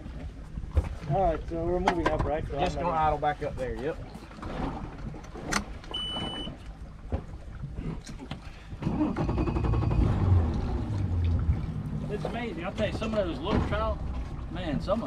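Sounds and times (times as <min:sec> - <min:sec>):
boat engine rumble: 0:00.0 - 0:15.0
short high electronic beep: 0:06.0 - 0:06.5.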